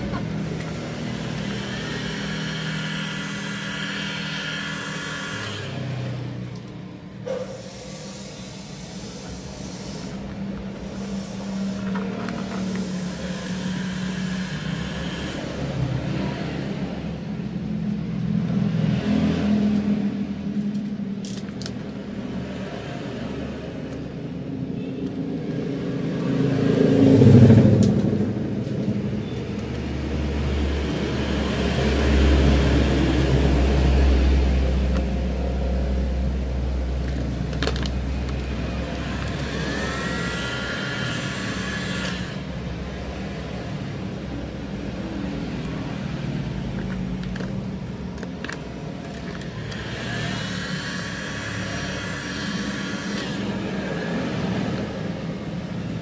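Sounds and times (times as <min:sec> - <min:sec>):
heat gun blowing: 0:00.7 - 0:06.0, 0:07.4 - 0:15.7, 0:38.8 - 0:42.6, 0:49.4 - 0:54.8.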